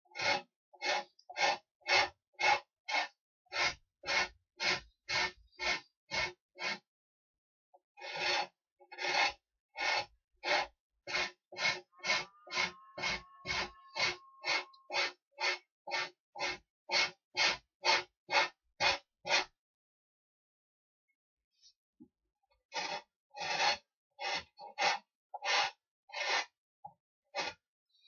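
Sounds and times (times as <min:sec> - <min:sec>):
hand tool rasping: 0:00.2 - 0:06.8, 0:08.0 - 0:19.5, 0:22.7 - 0:26.5.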